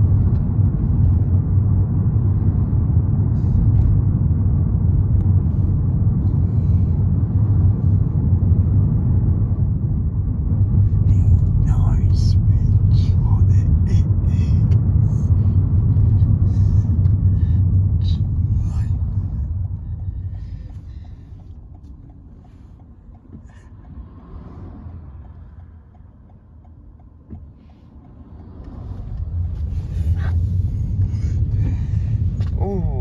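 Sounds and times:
car cabin engine rumble: 0.0s - 33.0s
faint regular ticking: 16.9s - 29.5s.

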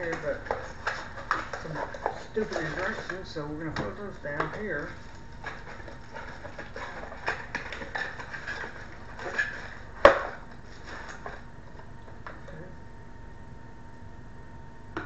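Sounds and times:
cardboard and paper rustling: 0.0s - 11.5s.

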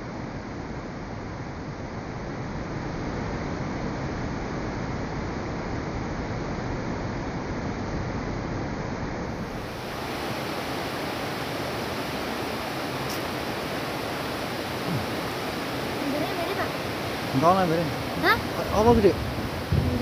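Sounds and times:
water rushing in channel: 9.2s - 20.0s.

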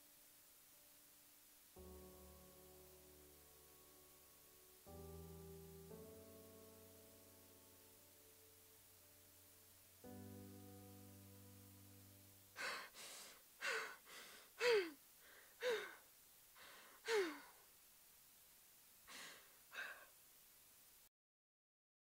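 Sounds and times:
sustained musical chord: 1.8s - 12.6s
woman sobbing gasps: 12.6s - 16.0s, 16.6s - 17.5s.

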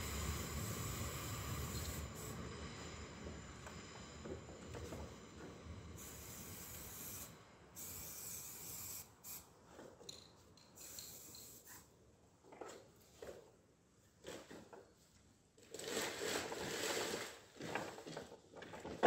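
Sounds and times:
spray paint can hissing: 6.0s - 9.4s, 10.8s - 11.8s.

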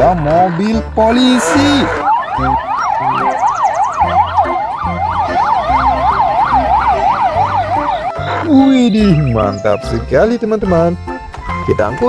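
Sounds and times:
police siren yelping: 0.0s - 9.3s.

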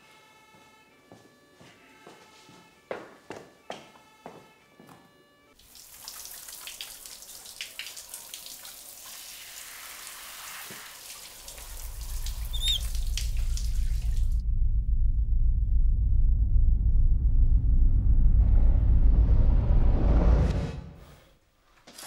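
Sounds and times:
shower spray splashing on skin: 5.6s - 14.3s
deep pulsing rumble: 11.6s - 21.0s.

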